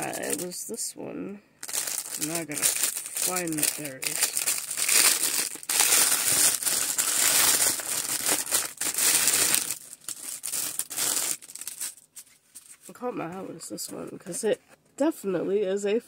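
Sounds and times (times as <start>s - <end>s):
plastic bag crinkling: 0.0s - 0.6s, 1.6s - 12.9s.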